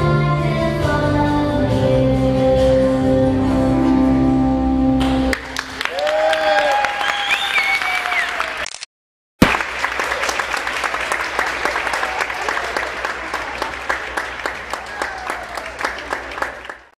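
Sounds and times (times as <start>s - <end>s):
audience applauding: 5.0s - 8.8s, 9.4s - 16.9s.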